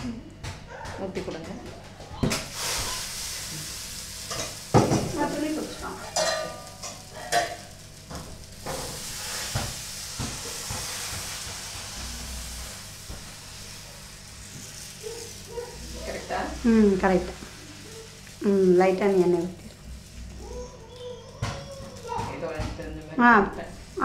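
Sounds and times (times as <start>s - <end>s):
batter sizzling in pan: 2.0s - 24.0s
ladle clinking on pan: 6.1s - 7.6s.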